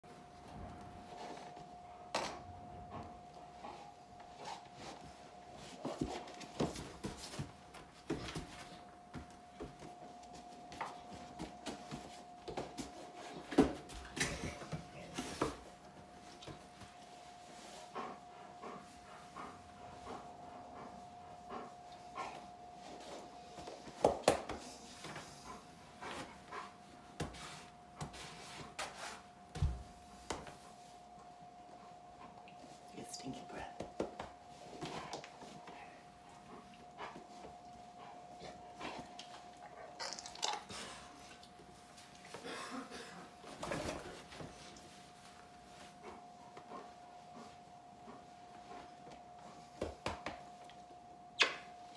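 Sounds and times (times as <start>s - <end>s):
faint steady tone: 29.4s - 40.0s.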